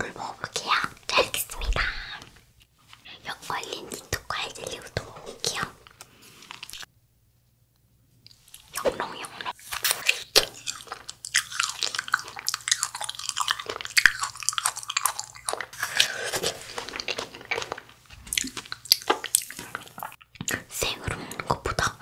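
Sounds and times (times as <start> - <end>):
crunchy candy chewing: 8.5 - 20.6.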